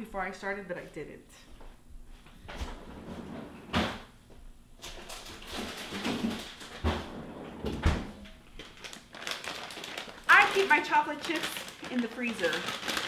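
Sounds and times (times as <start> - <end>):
frozen packages knocking: 8.6 - 13.0.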